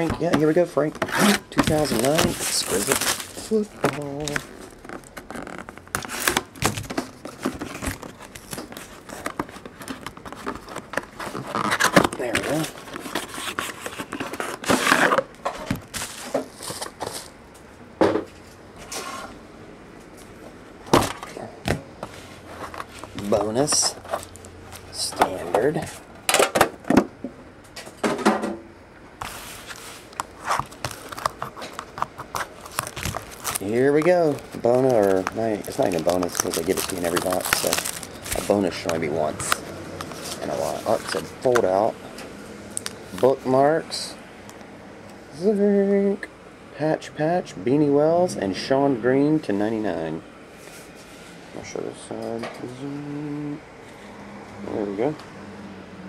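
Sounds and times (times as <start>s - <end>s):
plastic wrap rustle: 0.0s - 15.2s, 29.3s - 41.9s
cardboard box being opened: 1.0s - 15.2s, 30.4s - 39.5s.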